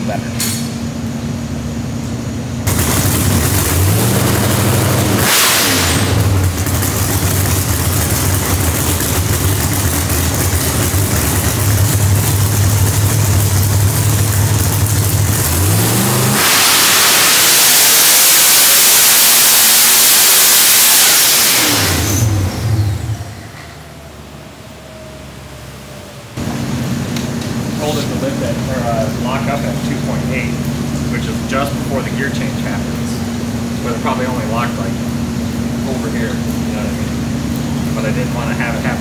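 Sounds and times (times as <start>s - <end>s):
supercharged engine revving on dyno: 2.6s - 23.5s.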